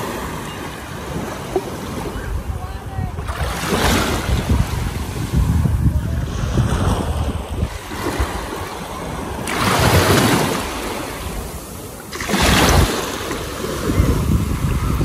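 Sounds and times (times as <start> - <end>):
small waves washing on sand: 0.0 - 15.0
surf hiss surges: 0.0 - 15.0.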